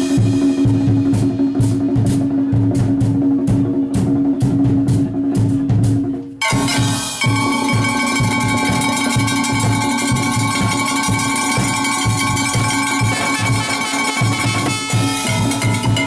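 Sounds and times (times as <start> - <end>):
bass drum beat: 0.0 - 16.0
metallic brake drum rhythm: 0.0 - 16.0
ringing metallic tones: 6.4 - 16.0.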